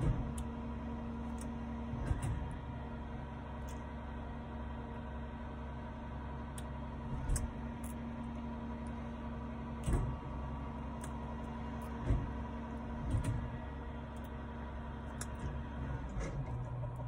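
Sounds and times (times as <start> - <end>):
car cabin hum: 6.5 - 14.3.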